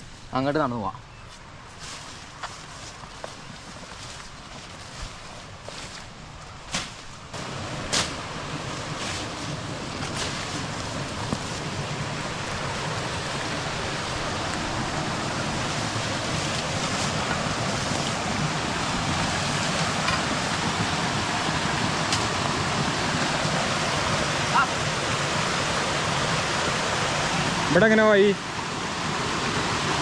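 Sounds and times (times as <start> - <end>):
footsteps through undergrowth: 1.2 - 11.8, 14.5 - 20.2
stream rushing over rocks: 7.3 - 30.0.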